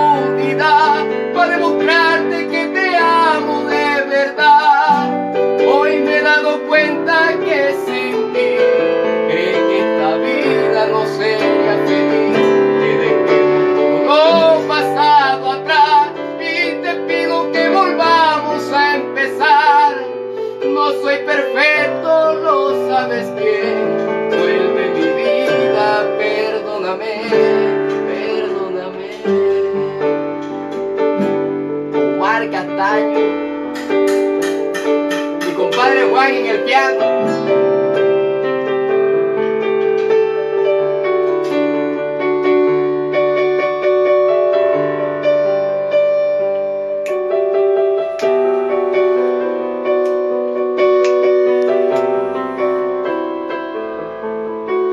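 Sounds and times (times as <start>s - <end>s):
man singing wordless notes: 0.0s - 30.6s, 32.1s - 33.3s, 34.8s - 38.0s
electronic keyboard piano chords: 0.0s - 54.9s.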